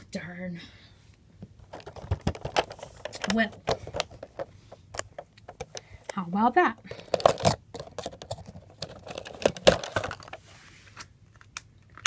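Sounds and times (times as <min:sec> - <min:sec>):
hands handling cardboard box: 0:01.4 - 0:05.9, 0:06.9 - 0:10.5.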